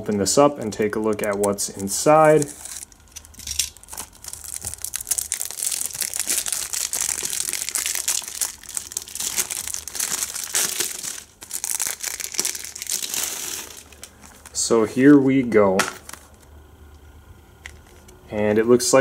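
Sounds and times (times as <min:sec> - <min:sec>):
plastic wrap crackling: 0:00.1 - 0:14.7.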